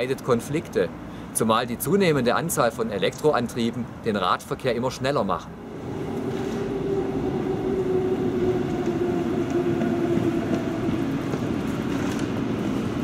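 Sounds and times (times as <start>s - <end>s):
underground train rumble: 0.0s - 13.0s
humming whine: 5.4s - 13.0s.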